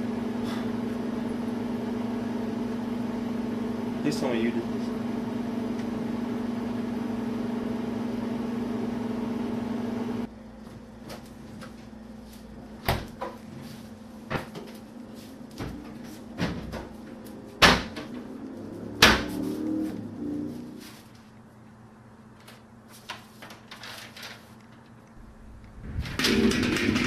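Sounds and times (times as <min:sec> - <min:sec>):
steady low hum: 0:25.0 - 0:27.0.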